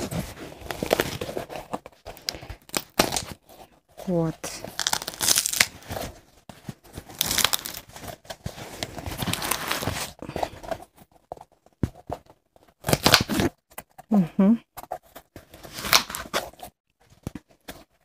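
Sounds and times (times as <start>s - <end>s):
glue crackling and tearing: 4.6s - 5.8s, 7.1s - 7.9s, 12.8s - 13.5s.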